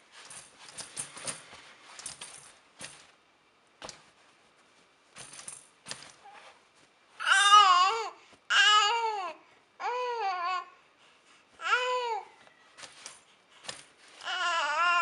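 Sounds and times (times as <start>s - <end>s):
plush toy rattling: 5.1s - 6.4s.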